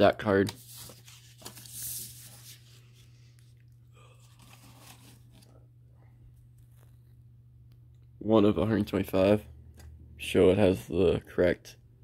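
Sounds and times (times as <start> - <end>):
paper and card rustling: 0.0 - 5.6
low electrical hum: 0.0 - 12.0.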